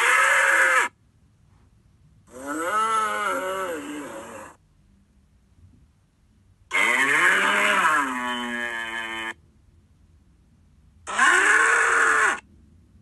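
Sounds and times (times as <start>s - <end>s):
cartoon moo-like bellow: 2.3s - 4.6s, 6.7s - 9.4s, 11.1s - 12.4s.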